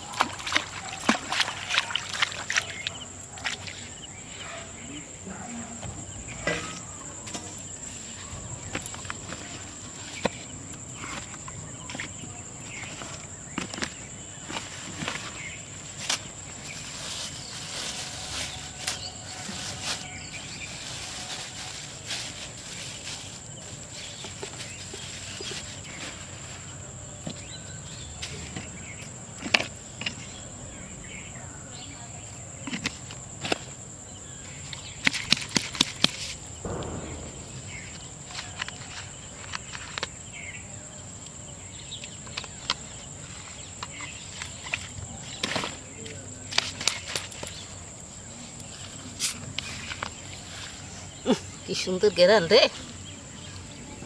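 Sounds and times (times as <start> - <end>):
plastic bag rustling: 12.8 - 26.7.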